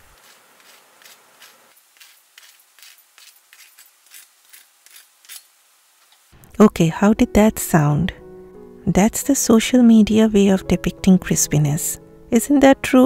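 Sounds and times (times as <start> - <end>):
fork crunching fried crust: 0.0 - 5.4.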